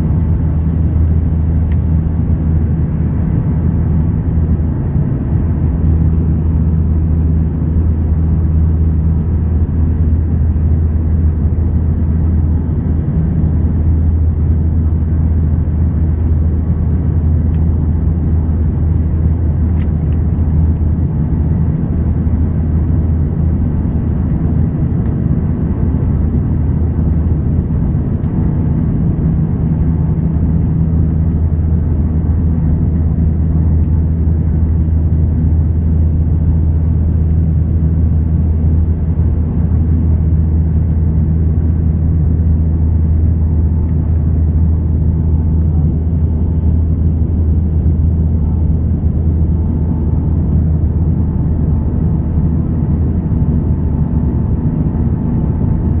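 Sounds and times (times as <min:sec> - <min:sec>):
airliner engines and propellers droning: 0:00.0 - 0:56.0.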